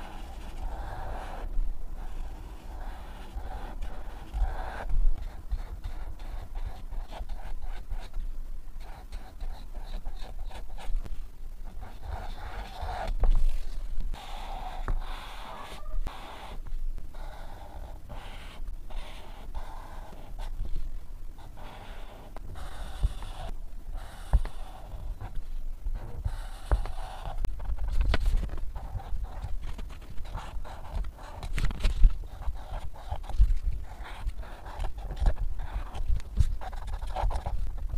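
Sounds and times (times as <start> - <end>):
marker scratching on paper: 0.0 - 8.2, 8.8 - 11.0, 11.6 - 20.6, 21.4 - 25.4, 26.0 - 37.9.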